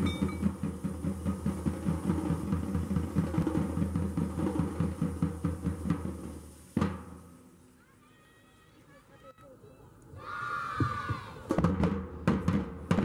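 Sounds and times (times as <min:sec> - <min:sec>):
fast drum beat: 0:00.0 - 0:07.2.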